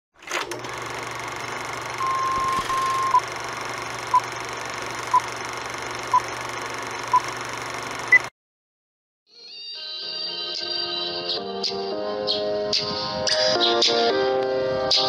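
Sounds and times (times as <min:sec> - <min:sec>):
film projector whirring: 0:00.2 - 0:08.3
countdown beeps: 0:02.0 - 0:03.2.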